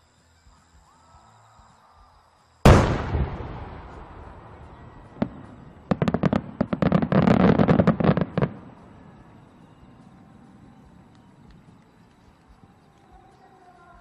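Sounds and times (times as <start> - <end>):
firework bang with rumble: 2.7 - 8.2
firework pops and crackles: 2.7 - 13.6.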